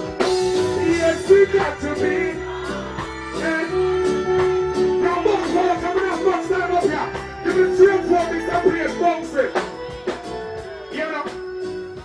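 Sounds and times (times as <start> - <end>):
live reggae band: 0.0 - 12.0
man singing into microphone: 0.7 - 2.6, 3.3 - 9.6.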